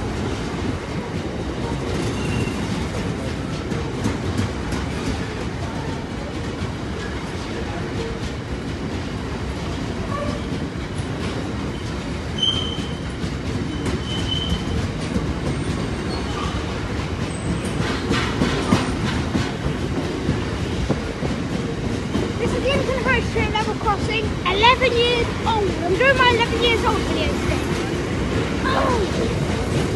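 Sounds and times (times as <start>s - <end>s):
freight train wheels rumbling on rail: 0.0s - 29.9s
wheels clattering over rail joints: 0.2s - 29.9s
high wheel squeals: 2.1s - 2.7s, 11.7s - 13.1s, 13.7s - 14.8s, 15.5s - 16.6s.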